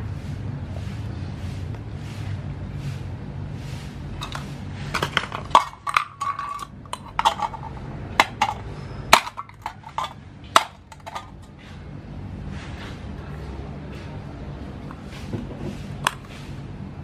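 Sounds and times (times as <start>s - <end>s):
knife striking metal can: 4.2s - 11.4s.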